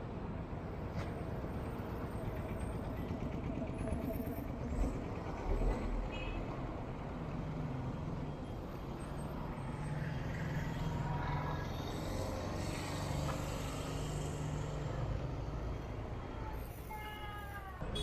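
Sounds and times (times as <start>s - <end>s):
road noise hum: 0.0s - 18.0s.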